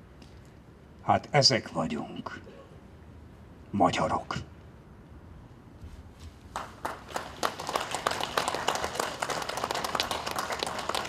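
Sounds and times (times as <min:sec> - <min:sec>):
people clapping: 0:06.5 - 0:11.0.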